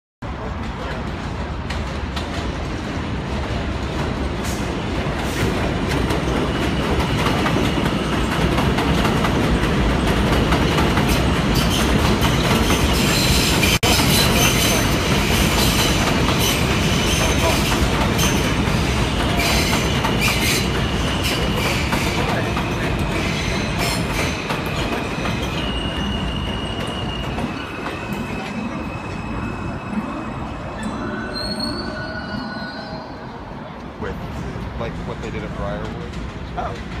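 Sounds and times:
wheels rumbling on rail: 0:00.2 - 0:37.0
high wheel squeal: 0:11.6 - 0:33.5.

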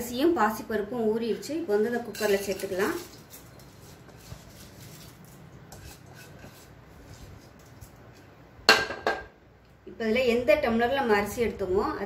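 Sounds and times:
scraping rice from a bowl: 0:02.2 - 0:08.4.

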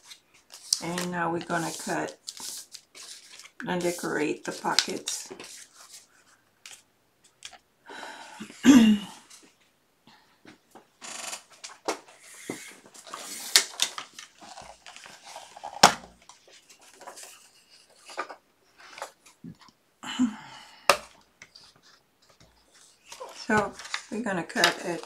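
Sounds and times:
paper rustling and sliding: 0:00.0 - 0:06.8, 0:11.5 - 0:19.4, 0:21.4 - 0:25.0.

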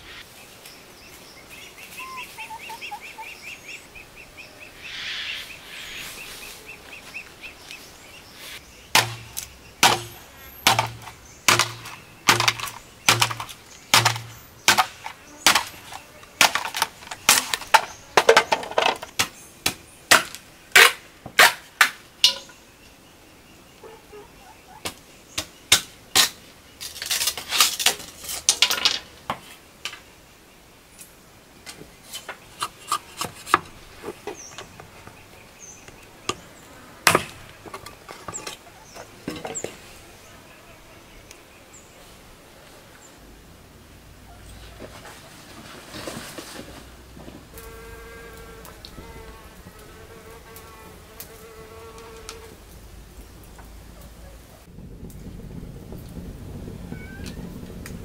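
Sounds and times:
machete chopping bamboo: 0:08.9 - 0:17.9, 0:19.2 - 0:22.5.

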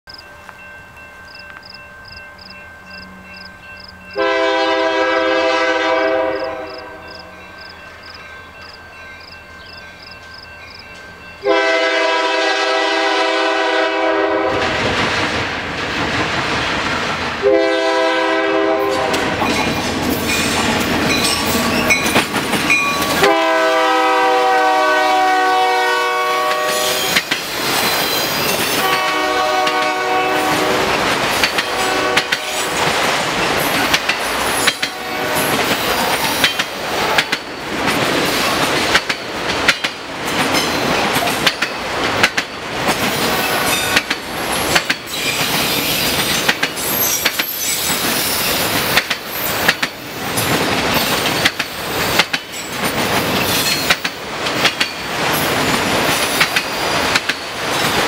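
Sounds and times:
train rumble and wheel clatter: 0:00.1 - 0:58.0
locomotive air horn: 0:04.2 - 0:07.1, 0:11.4 - 0:14.8, 0:17.4 - 0:19.4, 0:23.2 - 0:27.2, 0:28.8 - 0:30.9, 0:31.7 - 0:32.8, 0:34.8 - 0:35.7.

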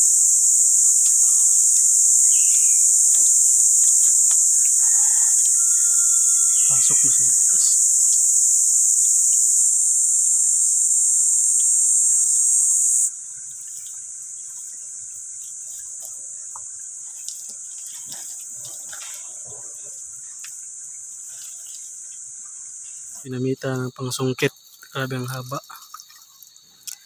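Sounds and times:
high-pitched insect chorus: 0:00.0 - 0:27.0.

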